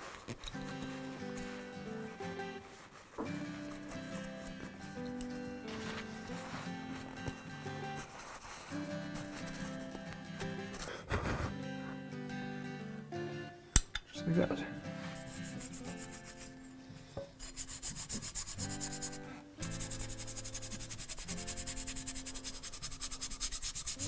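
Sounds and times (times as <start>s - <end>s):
soft background music: 0.0s - 24.0s
toothbrush scrubbing metal: 15.2s - 16.6s, 17.4s - 24.0s.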